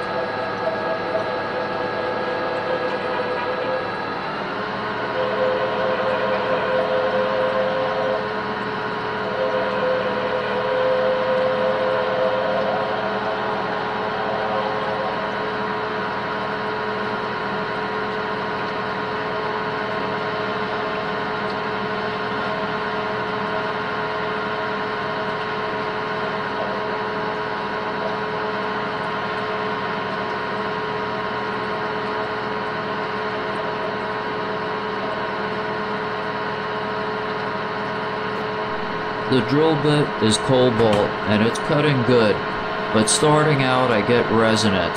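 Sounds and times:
wavering ringing tone: 0.0 - 4.3, 4.9 - 16.9
lathe drilling steel: 37.8 - 44.9.

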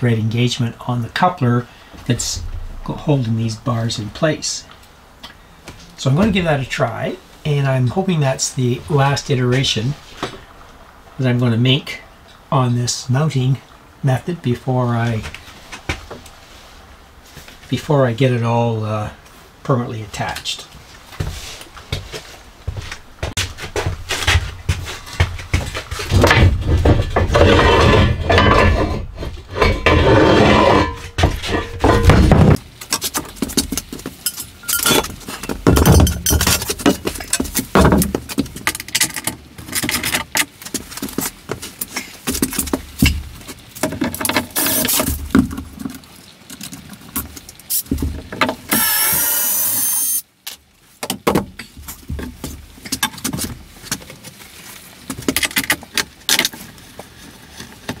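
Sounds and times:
knocks clunks and scraping: 0.0 - 11.4, 20.1 - 49.4.

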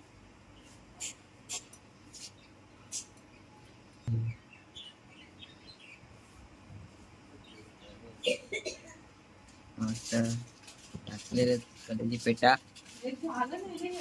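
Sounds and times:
birds chirping: 0.4 - 12.8.

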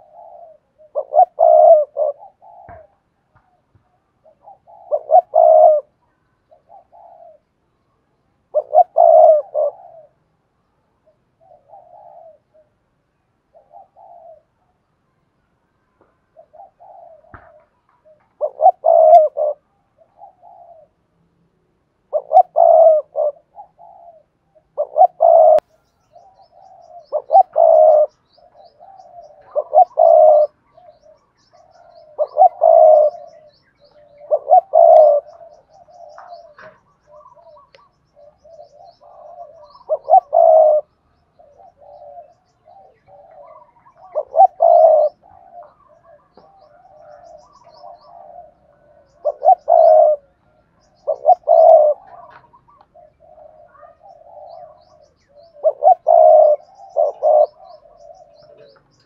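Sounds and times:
dove cooing: 0.0 - 7.6, 8.5 - 14.8, 16.2 - 21.1, 22.0 - 59.0.

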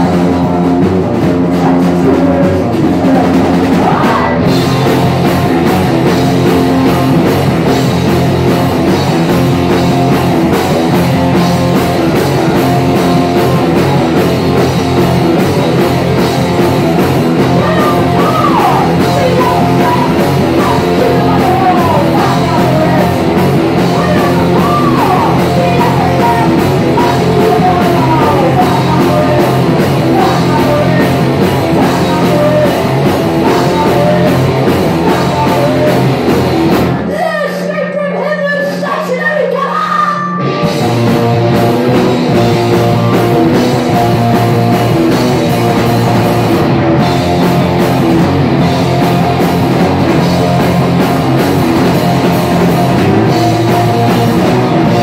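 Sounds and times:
electric guitar: 0.0 - 37.7, 39.7 - 55.0
drums: 0.0 - 55.0
person singing: 1.5 - 5.0, 17.4 - 36.4.

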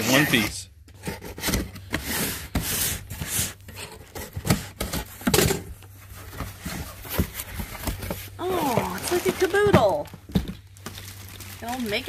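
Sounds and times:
cardboard flaps creaking: 6.1 - 10.7.

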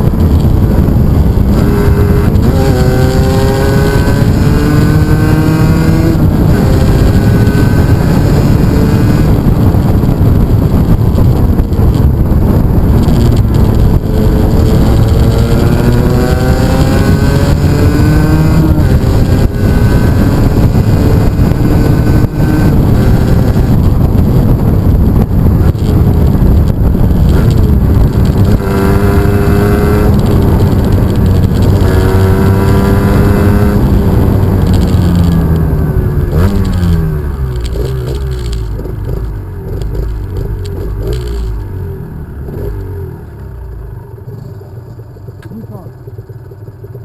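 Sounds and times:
motorcycle engine accelerating: 0.0 - 47.0
wind rumbling on microphone: 0.0 - 47.0.

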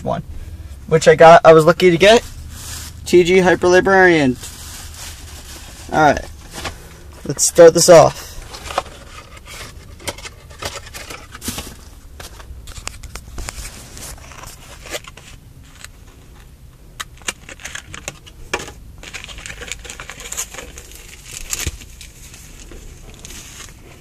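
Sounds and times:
low steady rumble: 0.0 - 24.0
plastic blister pack crinkling: 2.1 - 11.9, 19.0 - 23.8.

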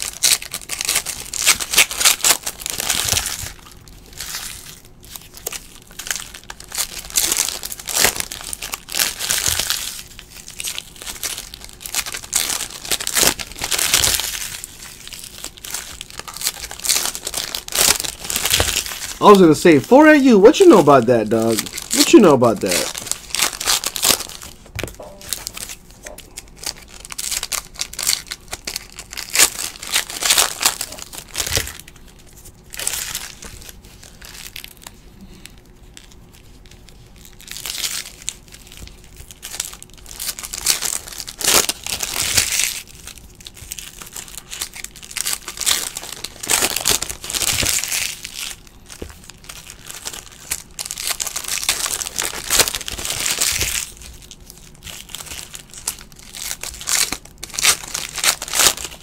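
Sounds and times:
plastic wrappers crinkling and tearing: 0.0 - 59.0.

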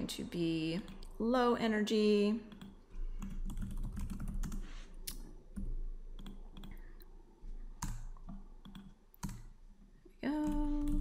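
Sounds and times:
typing on keyboard: 2.5 - 4.7, 7.8 - 9.5, 10.4 - 11.0.

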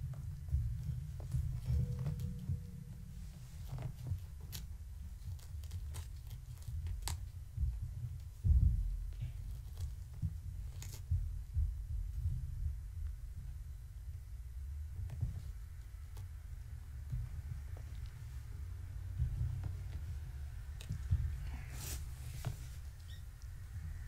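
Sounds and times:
low rumble: 0.0 - 5.5.

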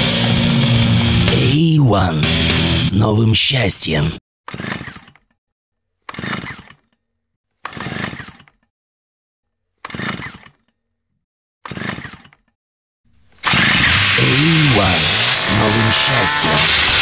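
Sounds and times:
loud music: 0.0 - 3.2, 13.6 - 17.0
harsh crashing bursts: 13.4 - 17.0.

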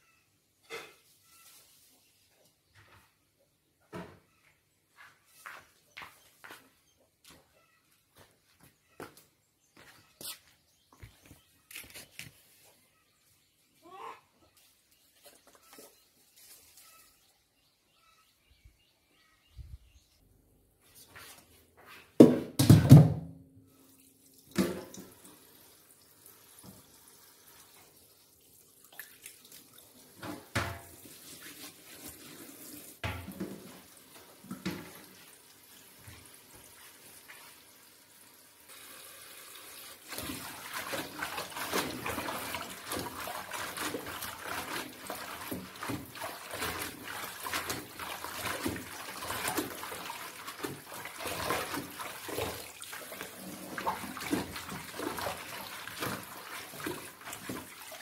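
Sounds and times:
tap water running and splashing: 24.0 - 58.0.

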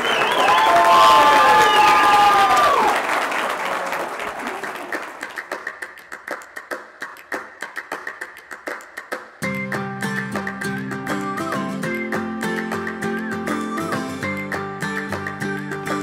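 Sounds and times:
voices cheering: 0.0 - 5.4
crowd applauding: 0.0 - 16.0.

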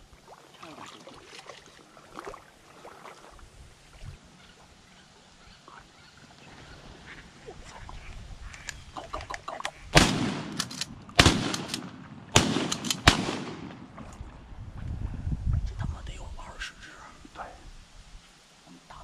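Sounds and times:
shotgun blasts: 9.9 - 14.1
shell cycled from shotgun: 10.0 - 13.8.

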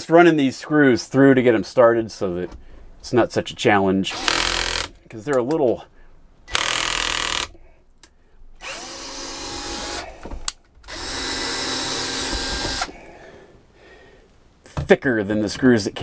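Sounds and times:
cordless drill driving screws: 4.1 - 4.9, 6.5 - 7.6, 8.6 - 10.1, 10.9 - 12.9.

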